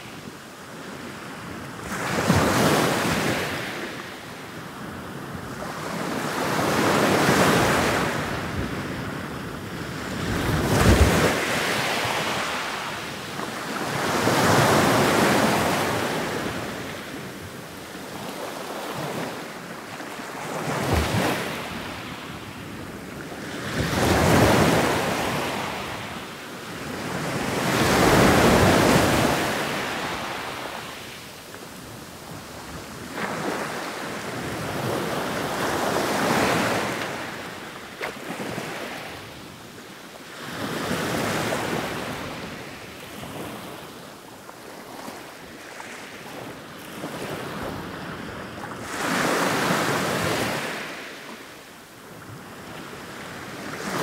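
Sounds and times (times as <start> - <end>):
ocean waves breaking: 26.7 - 31.2.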